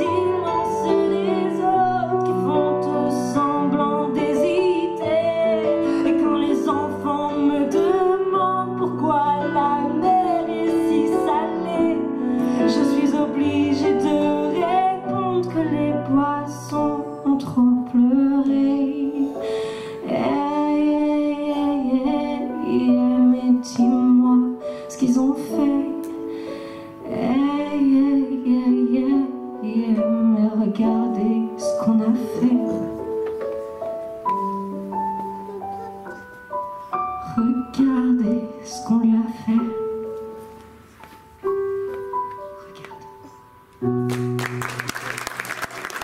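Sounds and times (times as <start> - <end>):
woman singing into microphone: 0.0 - 26.2, 27.0 - 33.1, 37.2 - 40.2
instrumental accompaniment: 0.0 - 46.0.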